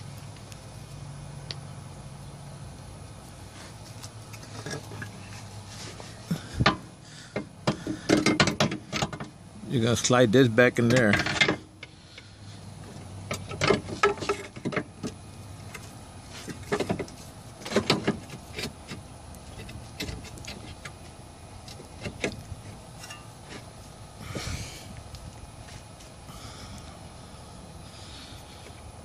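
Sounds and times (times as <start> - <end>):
metal knocks and scrapes: 4.3 - 9.4, 10.9 - 11.7, 13.2 - 21.0.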